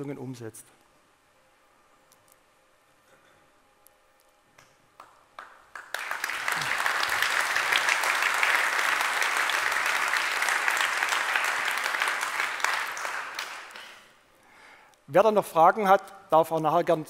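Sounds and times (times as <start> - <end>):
audience applauding: 5.0 - 14.2.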